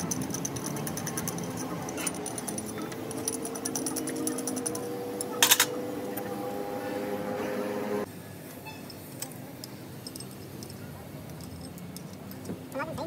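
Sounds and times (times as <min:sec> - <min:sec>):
steady hum: 0:00.0 - 0:08.2.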